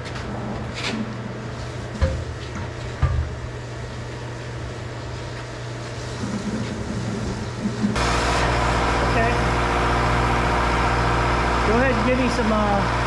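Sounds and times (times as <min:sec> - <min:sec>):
machine hum: 0:06.1 - 0:13.0
pump engine running: 0:06.2 - 0:13.0.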